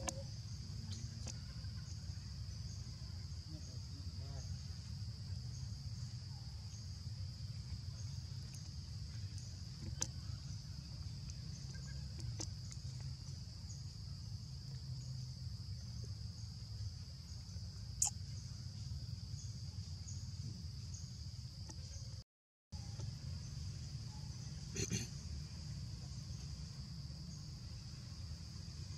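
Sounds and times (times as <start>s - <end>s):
shrill insect chorus: 0.0s - 22.2s, 22.8s - 28.9s.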